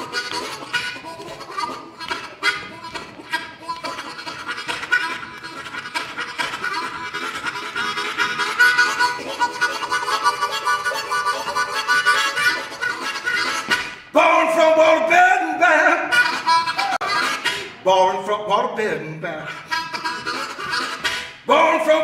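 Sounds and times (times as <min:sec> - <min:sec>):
harmonica playing: 0:00.0 - 0:22.0.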